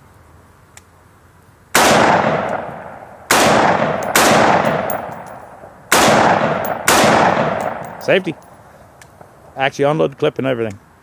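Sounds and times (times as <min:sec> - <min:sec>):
rifle shots with echo: 0:03.3 - 0:05.3, 0:05.9 - 0:08.1.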